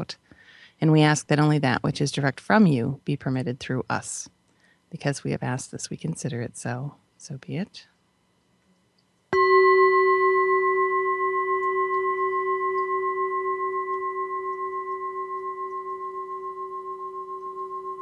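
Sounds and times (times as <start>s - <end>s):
singing bowl ringing: 9.4s - 18.0s.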